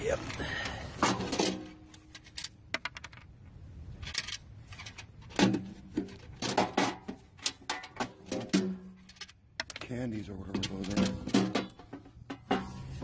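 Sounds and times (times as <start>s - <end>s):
junk clicking and knocking: 4.0s - 12.7s.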